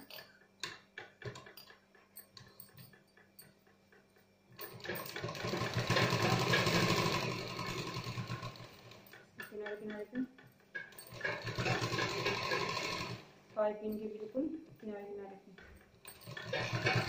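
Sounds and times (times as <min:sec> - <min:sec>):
sewing machine stitching: 0:04.6 - 0:10.2, 0:10.8 - 0:13.3, 0:15.8 - 0:17.0.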